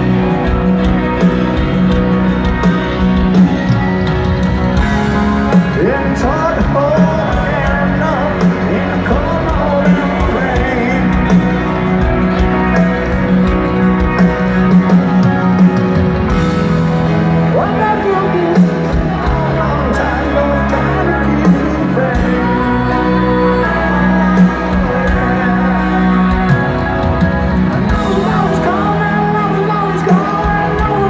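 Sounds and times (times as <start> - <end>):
rock band playing slow ballad: 0.0 - 31.0
person singing lead vocal: 4.7 - 31.0.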